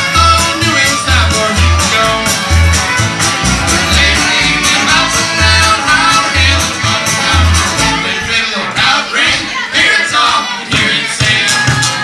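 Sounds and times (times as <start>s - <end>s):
upright bass plucking: 0.0s - 8.4s
strummed acoustic guitars: 0.0s - 12.0s.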